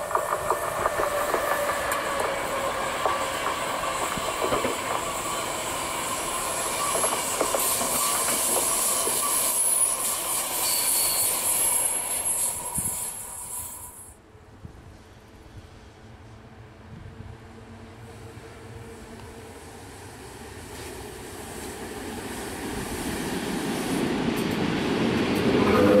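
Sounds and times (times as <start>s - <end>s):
train wheels clattering over rail joints: 0.0s - 5.4s, 6.6s - 9.8s
wheels squealing: 5.0s - 14.1s.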